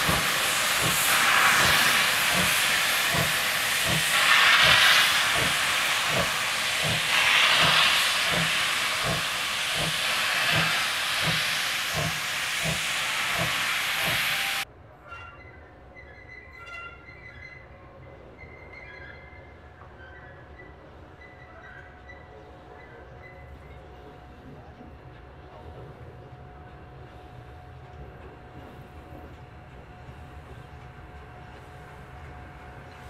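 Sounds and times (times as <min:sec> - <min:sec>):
steam hissing: 0:00.0 - 0:14.6
steam locomotive exhaust chuffs: 0:00.0 - 0:14.7.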